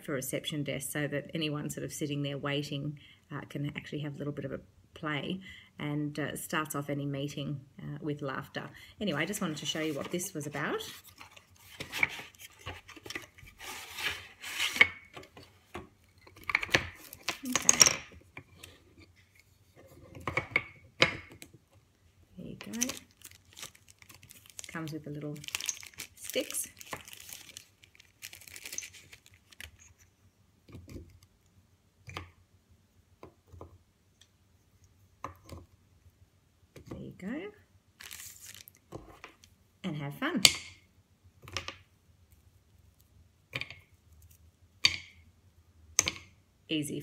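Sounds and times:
cardboard and wood scraping: 9.2s - 15.7s
plastic bag crinkling: 22.4s - 30.0s, 38.0s - 38.8s.

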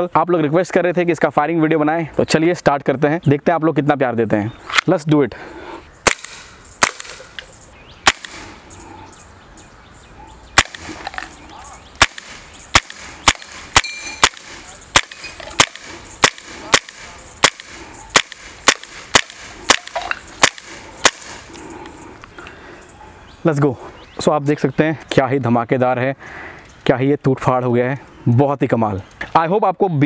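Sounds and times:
air pistol shots: 6.0s - 7.2s, 8.0s - 8.6s, 10.6s - 11.3s, 12.0s - 21.5s.

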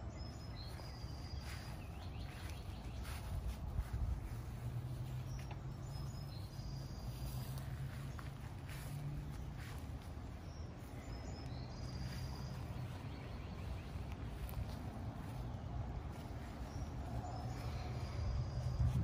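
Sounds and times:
bird chirps: 0.0s - 3.3s, 9.6s - 19.0s
low wind rumble on microphone: 0.0s - 6.5s, 12.6s - 19.0s.

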